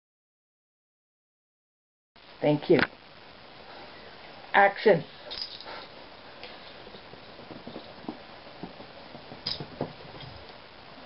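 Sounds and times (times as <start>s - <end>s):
kittens thumping on foam mat: 7.0s - 10.4s.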